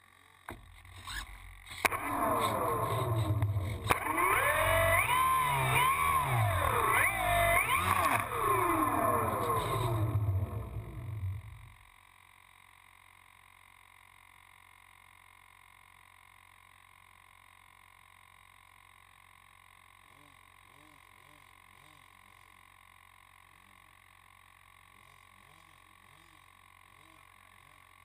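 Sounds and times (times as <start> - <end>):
electric motor and propeller whining: 0.0 - 11.8
faint steady hum: 0.0 - 28.0.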